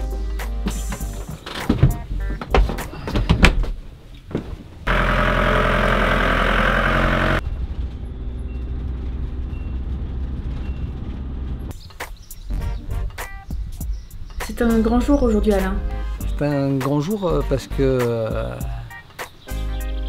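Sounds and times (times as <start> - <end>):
doors and fittings knocking: 0.7 - 4.5
engine drone inside cab: 4.8 - 11.7
motorhome driving by: 4.9 - 11.7.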